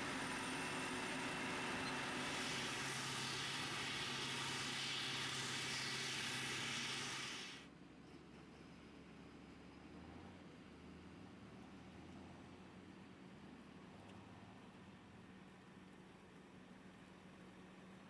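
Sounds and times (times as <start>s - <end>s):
harvester and tractors engine din: 0.0s - 11.0s.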